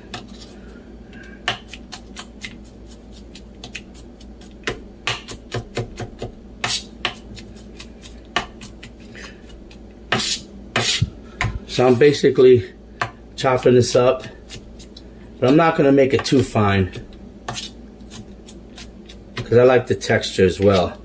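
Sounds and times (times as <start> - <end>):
knife chopping on plastic cutting board: 1.4 - 11.6, 15.5 - 19.6.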